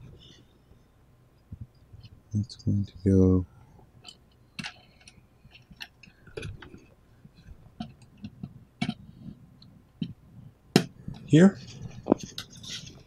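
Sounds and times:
wires rustling: 0:03.8 - 0:13.0.

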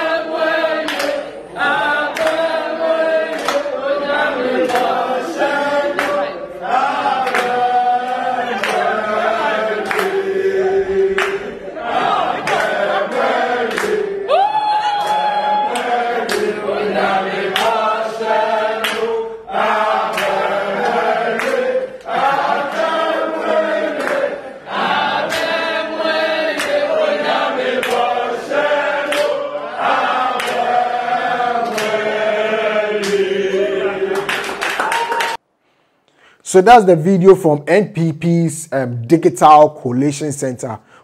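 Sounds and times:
group singing a chant: 0:00.0 - 0:34.9
sharp claps: 0:00.8 - 0:01.2, 0:02.1 - 0:02.5, 0:03.3 - 0:03.7, 0:04.6 - 0:05.0, 0:05.9 - 0:06.2, 0:07.2 - 0:08.9, 0:09.8 - 0:10.2, 0:11.2 - 0:11.6, 0:12.4 - 0:14.0, 0:14.9 - 0:16.5, 0:17.5 - 0:17.8, 0:18.8 - 0:19.1, 0:20.0 - 0:22.9, 0:23.9 - 0:24.3, 0:25.2 - 0:25.6, 0:26.5 - 0:26.9, 0:27.8 - 0:28.1, 0:29.0 - 0:29.4, 0:30.3 - 0:30.8, 0:31.6 - 0:32.0, 0:33.0 - 0:33.2, 0:34.2 - 0:35.4.

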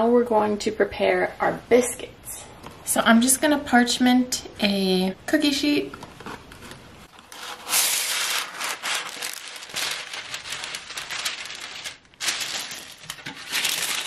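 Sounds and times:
parchment paper crinkling: 0:06.2 - 0:14.0
parchment paper tearing: 0:07.1 - 0:14.0.

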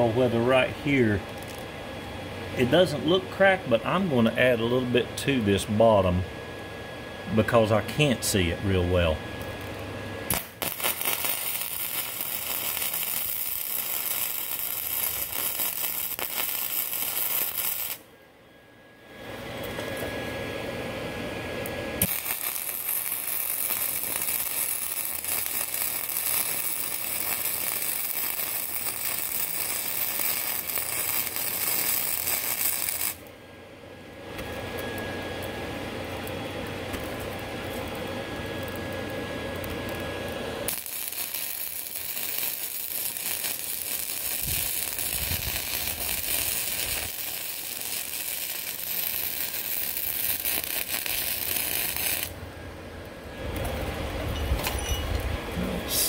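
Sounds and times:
welding arc crackling and sizzling: 0:00.0 - 0:01.7, 0:07.4 - 0:18.1, 0:21.6 - 0:33.3, 0:34.2 - 0:54.3.

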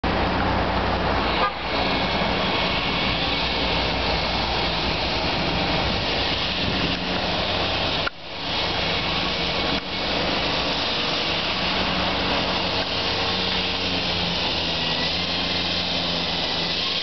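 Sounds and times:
road noise: 0:00.0 - 0:17.0
vehicle engines humming: 0:00.0 - 0:17.0
car horn toot: 0:01.4 - 0:01.6.

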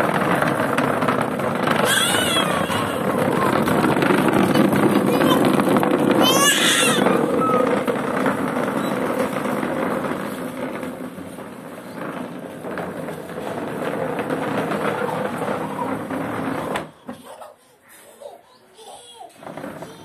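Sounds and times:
plastic chair scraping on concrete: 0:00.0 - 0:18.1, 0:18.8 - 0:20.0.

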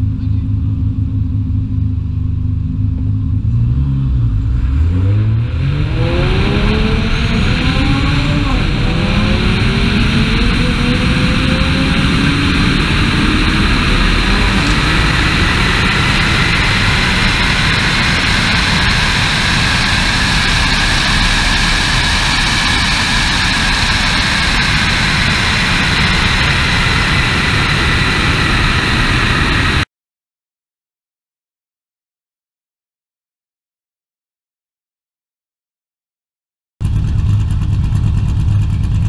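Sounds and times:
car engine at full throttle: 0:00.0 - 0:29.9, 0:36.8 - 0:39.0
faint rising whine: 0:02.5 - 0:29.9
wind rushing over camera: 0:05.2 - 0:29.8.

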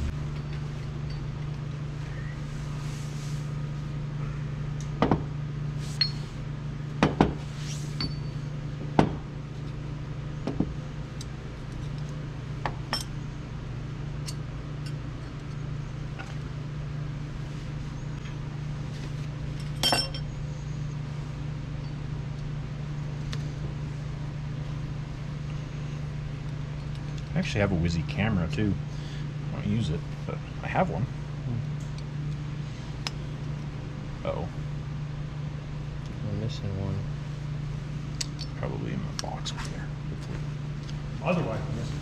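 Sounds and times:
low hum: 0:00.0 - 0:42.0
metal tools clinking: 0:19.6 - 0:20.3.

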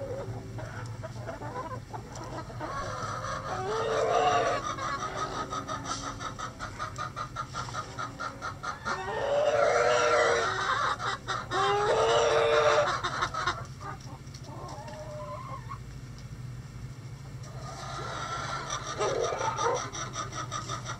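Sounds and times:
chickens clucking: 0:00.0 - 0:16.0, 0:17.2 - 0:20.9
rooster crowing: 0:03.5 - 0:04.6, 0:08.8 - 0:10.5, 0:11.6 - 0:12.9.

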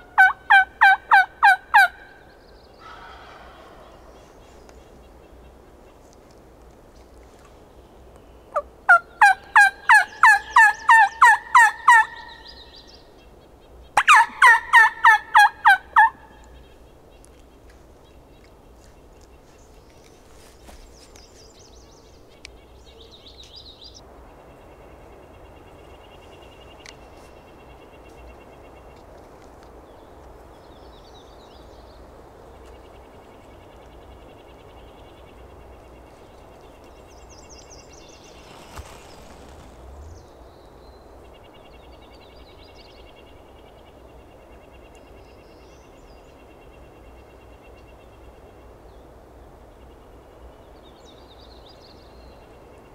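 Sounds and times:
wild turkey yelping: 0:00.2 - 0:02.2, 0:02.8 - 0:04.1, 0:08.9 - 0:12.4, 0:14.0 - 0:16.2.

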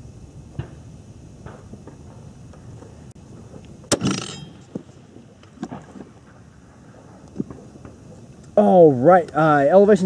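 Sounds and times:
rifle shot with echo: 0:03.9 - 0:04.7.

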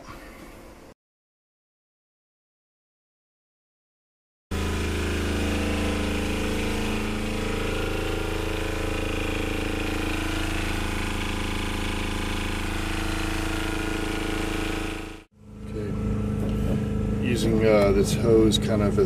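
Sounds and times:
diesel generator drone: 0:04.5 - 0:19.0.

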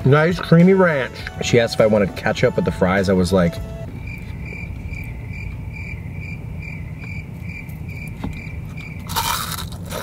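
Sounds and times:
cricket chirping sound effect: 0:04.0 - 0:09.3
crunchy bite into food: 0:09.0 - 0:10.0.

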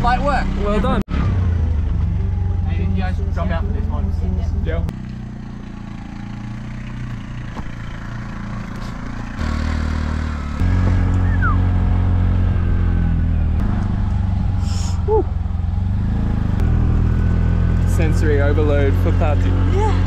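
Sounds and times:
small engine running: 0:05.0 - 0:12.2.

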